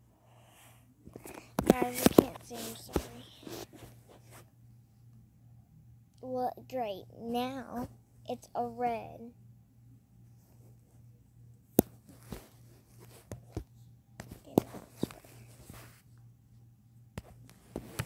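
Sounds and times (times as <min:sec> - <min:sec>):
soft rustling: 0:01.1 - 0:04.6, 0:12.0 - 0:16.3.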